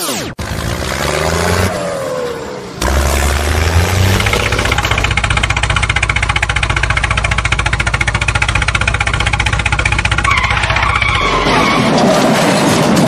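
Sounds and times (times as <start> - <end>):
tractor engine chugging: 2.8 - 11.8.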